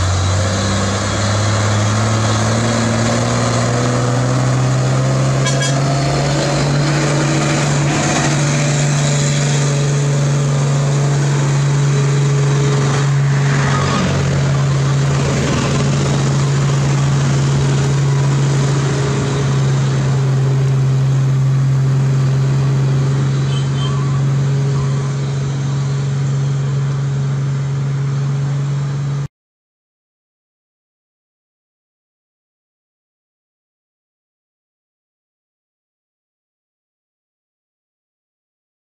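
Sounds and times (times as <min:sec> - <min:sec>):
diesel truck engine labouring: 0:00.0 - 0:29.3.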